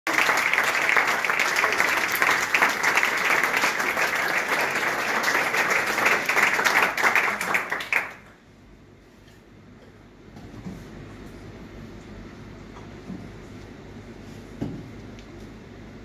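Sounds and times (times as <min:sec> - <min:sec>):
audience applause: 0:00.1 - 0:08.4.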